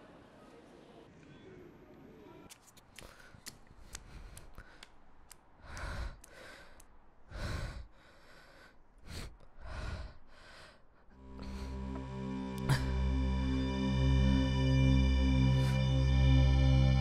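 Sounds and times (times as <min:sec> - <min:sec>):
faint clicks: 0:02.5 - 0:07.0
person breathing heavily: 0:03.0 - 0:13.4.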